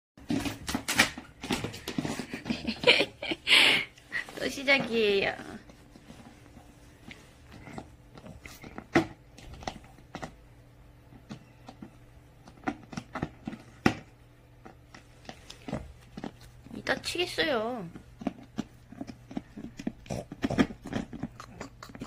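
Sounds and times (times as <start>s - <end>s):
faint steady hum: 0.2s - 22.0s
dog gnawing plastic bottle cap: 7.5s - 10.4s, 11.1s - 17.1s, 17.9s - 22.0s.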